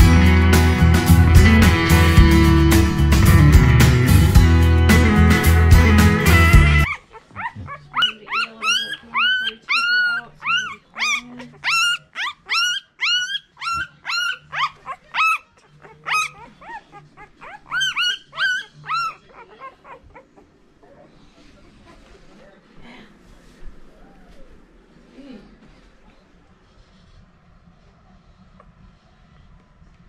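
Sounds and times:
guitar music: 0.0 - 6.9
puppies squealing: 6.8 - 20.6.

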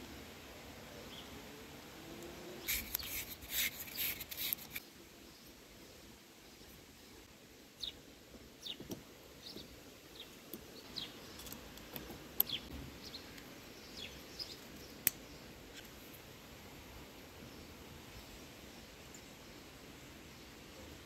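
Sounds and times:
birds chirping: 8.6 - 15.8.

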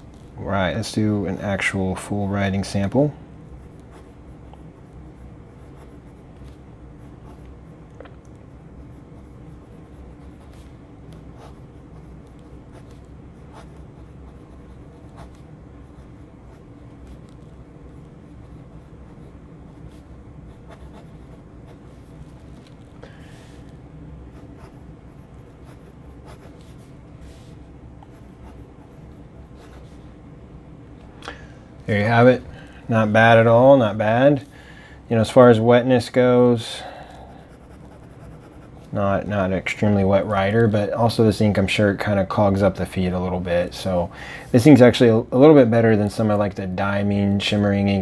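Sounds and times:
fountain pen scratching on paper: 3.6 - 7.6, 8.8 - 22.8, 25.5 - 27.4, 37.5 - 38.9.

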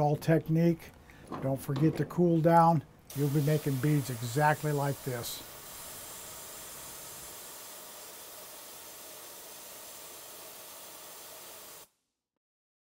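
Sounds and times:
steady hiss: 2.1 - 11.9.

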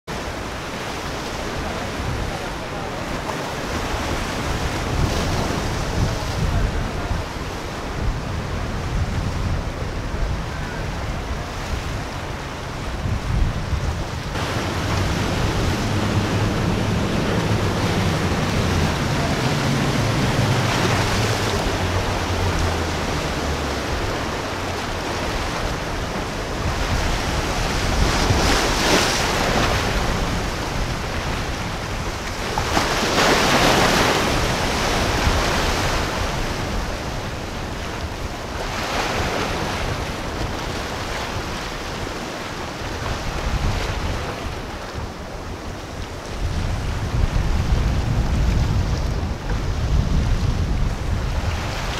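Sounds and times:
rushing surf: 0.1 - 51.9
wind buffeting microphone: 0.1 - 51.9
outboard motors droning: 14.1 - 47.3.

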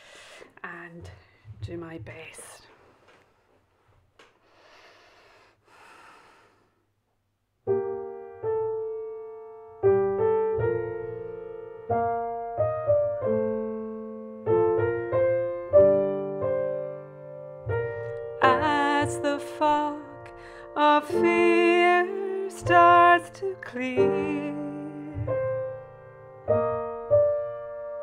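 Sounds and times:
faint breaths: 0.0 - 0.6, 2.4 - 6.9
slow piano chords: 7.7 - 28.0.

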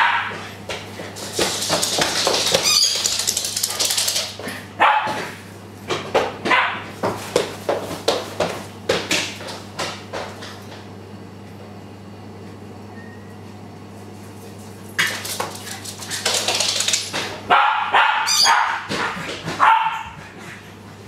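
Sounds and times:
dog barking and yipping: 0.0 - 0.4, 4.8 - 5.2, 17.5 - 20.3.

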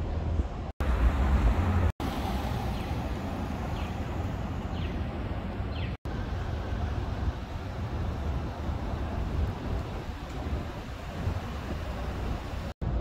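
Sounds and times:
cars driving past: 0.8 - 9.2.

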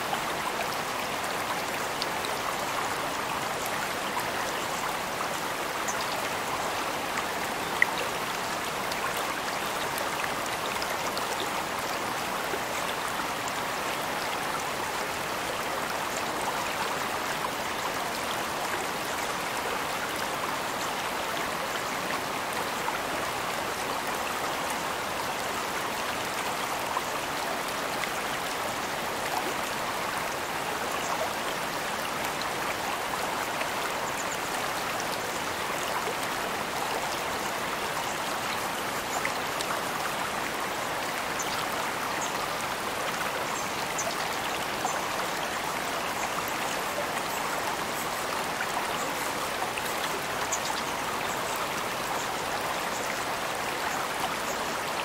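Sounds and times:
creek water running: 0.0 - 55.0.

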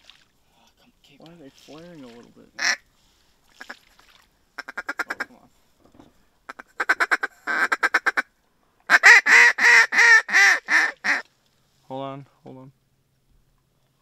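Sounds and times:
duck call quacking notes: 2.6 - 2.8, 4.6 - 5.3, 6.5 - 8.3, 8.9 - 11.3.

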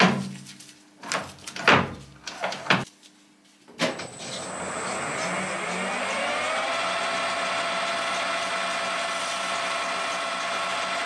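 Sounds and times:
lathe running: 4.0 - 11.0.

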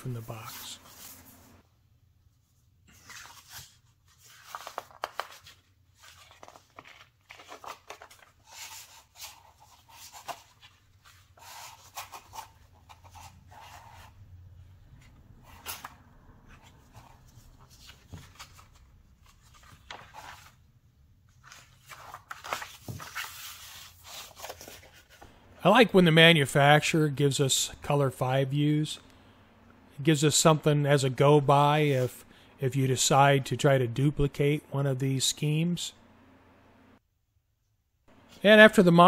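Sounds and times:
paper pages rustling: 2.9 - 14.2, 15.0 - 25.3.

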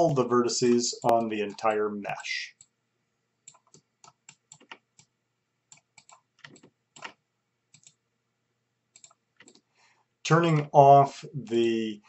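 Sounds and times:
keyboard and mouse clicking: 0.2 - 2.7, 3.4 - 5.1, 5.7 - 8.0, 8.9 - 9.7.

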